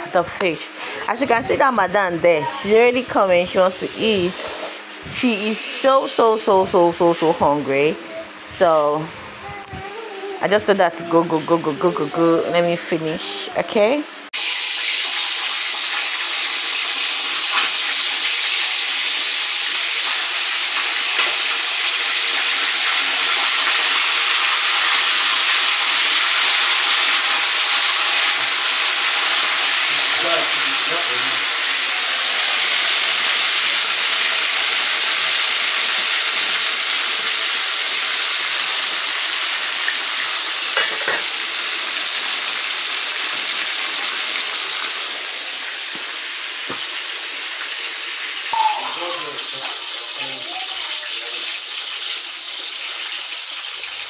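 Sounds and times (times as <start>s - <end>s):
fish sizzling in hot oil: 14.4s - 54.0s.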